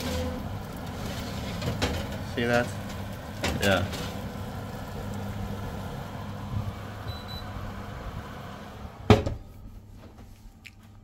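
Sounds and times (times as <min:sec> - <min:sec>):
low hum of oven and hob: 0:00.0 - 0:11.0.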